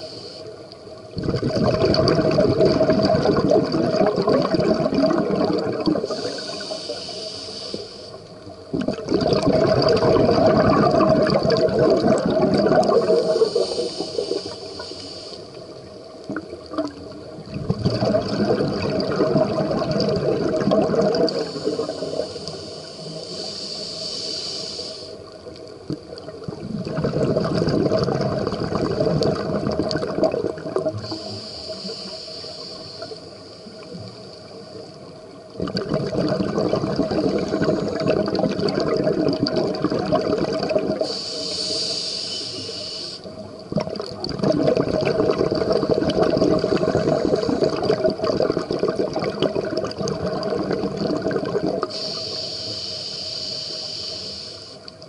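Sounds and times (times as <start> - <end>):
regulator hiss on inhale: 0.0 - 1.0, 6.0 - 8.5, 13.0 - 16.0, 21.1 - 25.6, 31.0 - 35.4, 37.2 - 38.2, 40.9 - 43.5, 46.6 - 48.0, 51.8 - 55.0
exhaust bubbling underwater: 1.1 - 6.6, 8.7 - 13.6, 16.2 - 22.3, 25.9 - 31.4, 35.5 - 41.2, 43.4 - 52.1.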